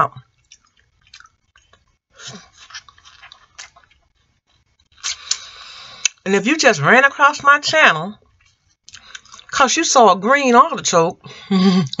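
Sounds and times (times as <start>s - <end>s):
chewing: 0.2s - 4.2s, 8.3s - 9.5s
lip smacks: 5.0s - 6.2s.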